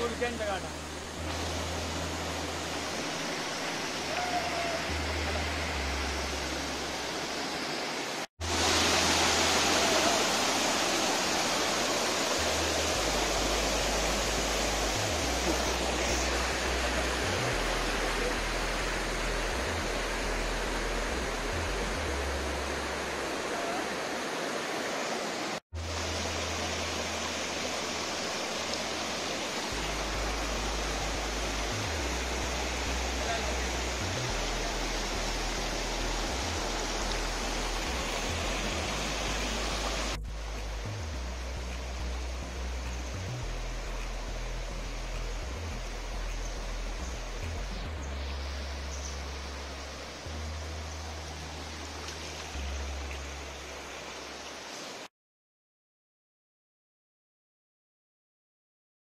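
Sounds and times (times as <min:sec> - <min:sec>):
waterfall rushing over rocks: 0:00.0 - 0:55.1.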